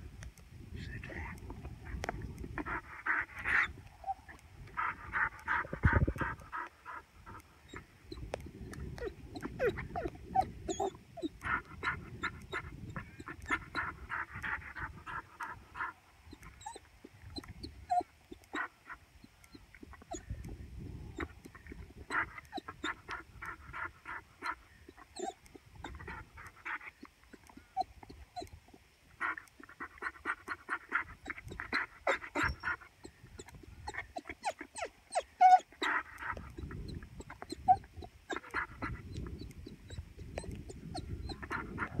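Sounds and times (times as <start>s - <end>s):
dog whining: 9.0s - 11.3s, 16.6s - 16.8s, 17.4s - 18.1s, 25.2s - 26.0s, 33.4s - 36.0s, 37.4s - 38.4s.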